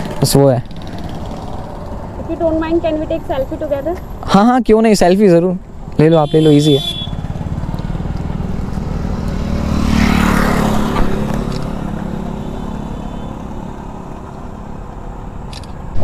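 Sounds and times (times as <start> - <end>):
scooter passing: 0.0 - 4.3, 5.7 - 16.0
motorcycle engine idling: 6.4 - 9.9.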